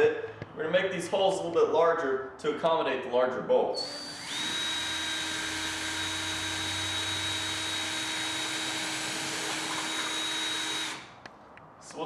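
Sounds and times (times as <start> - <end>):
cordless drill drilling: 3.8 - 11.2.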